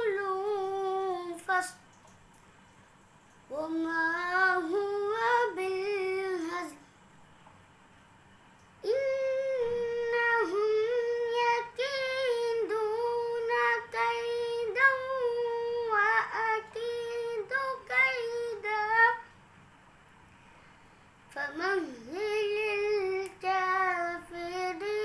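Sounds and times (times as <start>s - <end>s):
boy chanting recitation: 0.0s - 1.8s, 3.5s - 6.8s, 8.8s - 19.3s, 21.3s - 25.0s.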